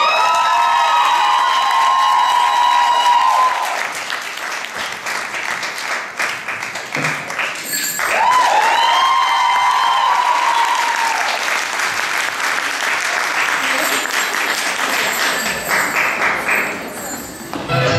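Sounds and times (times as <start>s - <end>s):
high-pitched cheers: 0.0s - 4.0s, 7.6s - 11.6s
audience applauding: 0.0s - 17.3s.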